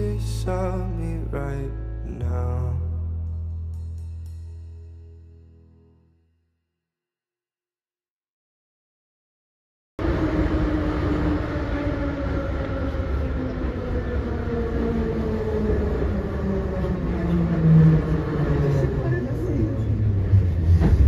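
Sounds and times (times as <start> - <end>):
train carriage rumbling on rails: 10.0 - 21.0.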